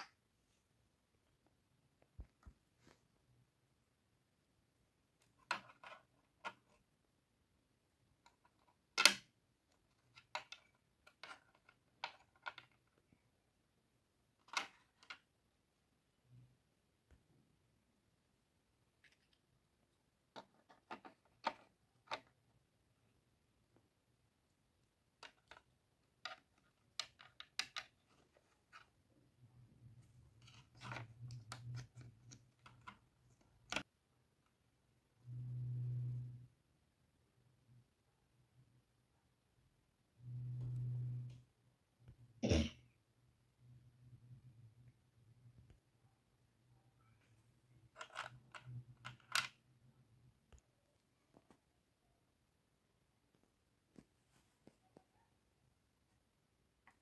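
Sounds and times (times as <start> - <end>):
toy furniture clicks and taps: 8.3 - 9.3, 25.2 - 28.0
plastic toy pieces clicking: 26.2 - 27.9
faint low hum: 28.0 - 57.0.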